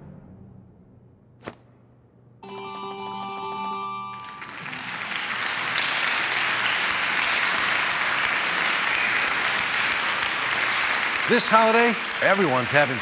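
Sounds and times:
held musical chord: 2.4 - 5.0
applause: 4.1 - 13.0.

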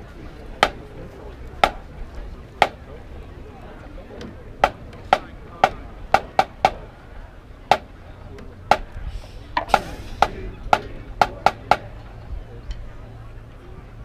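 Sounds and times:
drum mallet clicks and taps: 4.6 - 6.8.

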